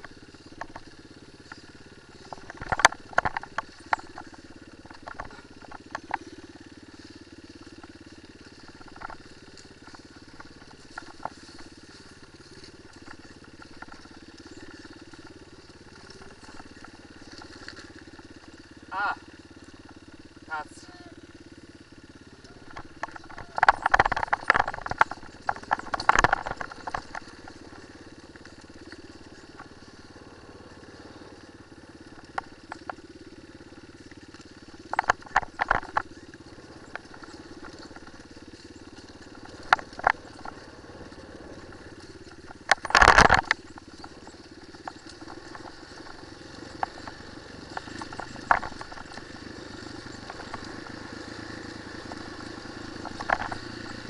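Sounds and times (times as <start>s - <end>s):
knocking and rattling over rocks: 0.0s - 20.6s, 21.4s - 54.0s
motorcycle engine running: 0.0s - 54.0s.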